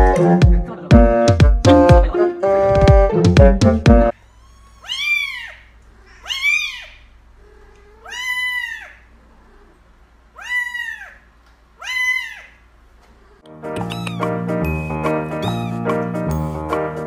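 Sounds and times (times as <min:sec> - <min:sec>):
kitten meowing: 0:04.3 - 0:09.1, 0:10.4 - 0:11.2, 0:11.8 - 0:12.6, 0:13.7 - 0:16.0.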